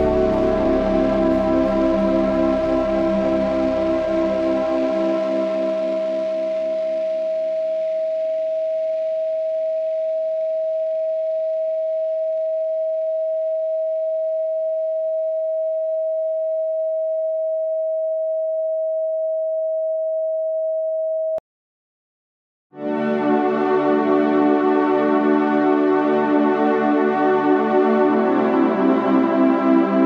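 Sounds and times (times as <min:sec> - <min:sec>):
soft ambient music: 0:00.0 - 0:08.4, 0:22.8 - 0:30.0
steady sine tone: 0:00.0 - 0:21.4.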